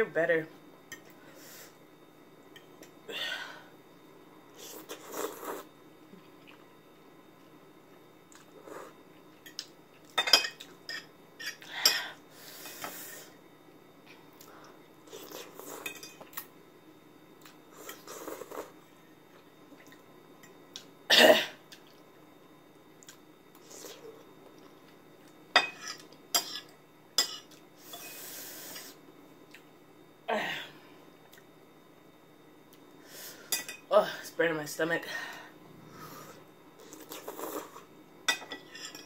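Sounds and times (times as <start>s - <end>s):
person eating noodles: 4.6s - 5.7s, 15.1s - 15.8s, 17.4s - 18.8s, 35.7s - 37.9s.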